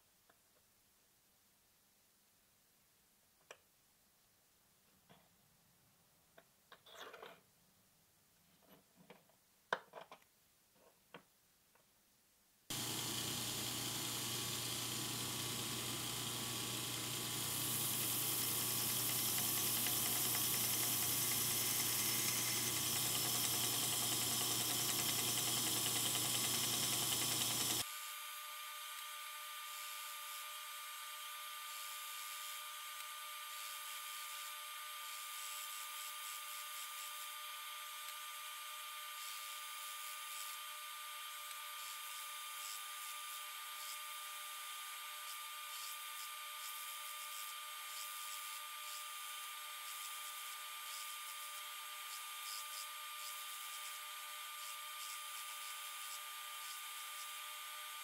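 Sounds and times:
belt grinder grinding steel blade: 12.7 - 27.8.

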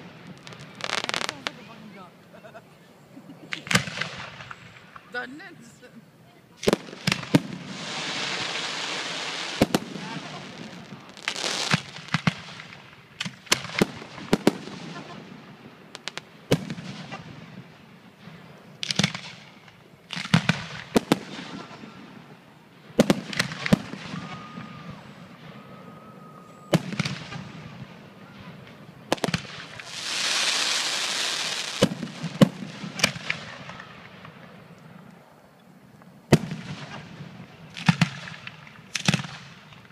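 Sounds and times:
fireworks bangs: 0.0 - 2.1, 3.4 - 5.8, 6.5 - 35.3, 36.2 - 39.9
fireworks hissing and crackling: 0.0 - 26.1, 26.7 - 39.9.

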